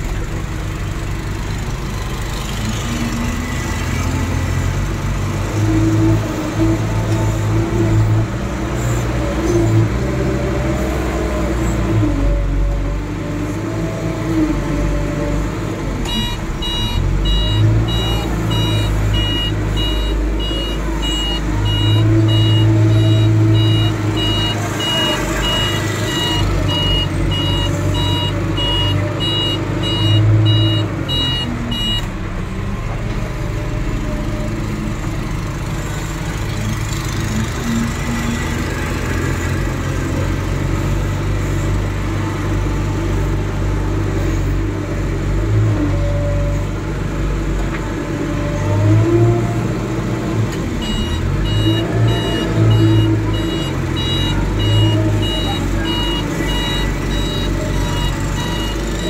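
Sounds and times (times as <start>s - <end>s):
diesel engine running under load: 0.0s - 59.0s
reversing alarm beeping: 16.0s - 32.1s, 50.8s - 59.0s.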